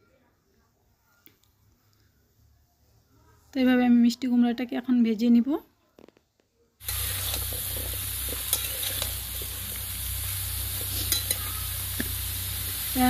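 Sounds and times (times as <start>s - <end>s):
spatula clicking and scraping: 6.8s - 9.5s, 10.8s - 11.4s
pumpkin sizzling in oil: 6.8s - 13.0s.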